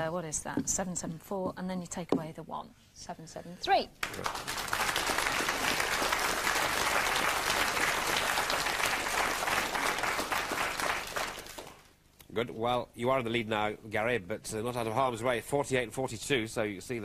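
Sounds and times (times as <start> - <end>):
audience applauding: 4.0 - 11.9.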